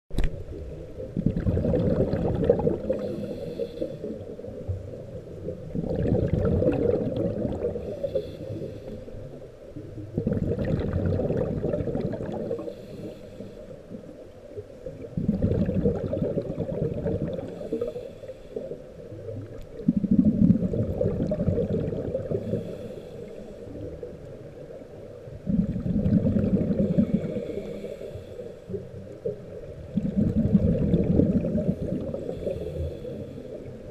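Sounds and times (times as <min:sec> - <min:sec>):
rush of exhaled bubbles: 0:00.5 - 0:09.0, 0:09.9 - 0:13.1, 0:14.9 - 0:23.0, 0:25.4 - 0:27.8, 0:28.7 - 0:33.9
scuba regulator breathing: 0:02.6 - 0:04.5, 0:07.6 - 0:09.3, 0:12.3 - 0:14.0, 0:17.4 - 0:18.9, 0:22.2 - 0:24.0, 0:26.7 - 0:28.9, 0:31.5 - 0:33.8.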